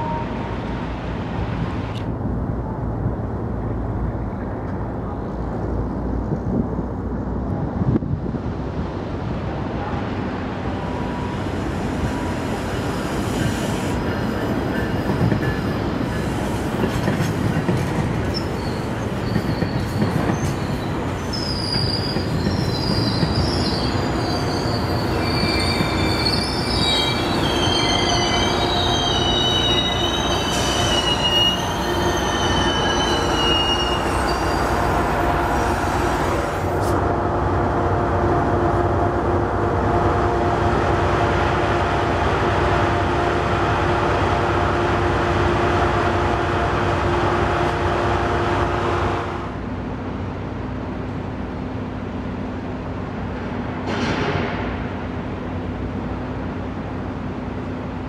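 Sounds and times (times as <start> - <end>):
train rumbling: 0.0 - 58.0
steel wheels squealing: 18.2 - 36.7.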